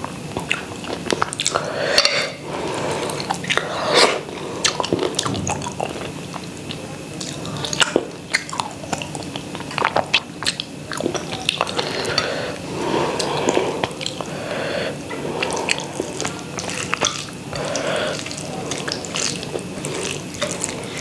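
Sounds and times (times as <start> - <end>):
wet chewing: 0.0 - 21.0
fingers mixing rice on a plate: 6.4 - 21.0.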